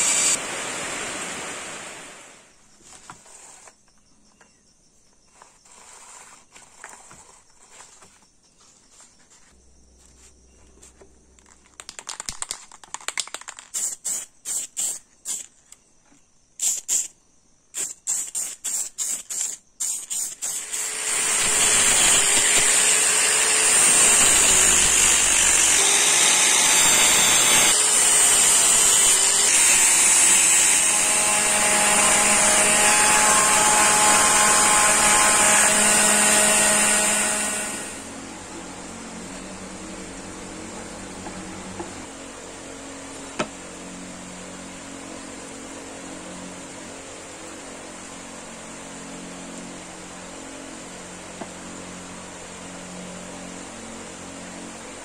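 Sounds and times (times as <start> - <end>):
aerosol spray hisses: 13.7 - 15.5, 16.6 - 17.2, 17.8 - 22.7
angle grinder grinding steel: 17.8 - 38.2.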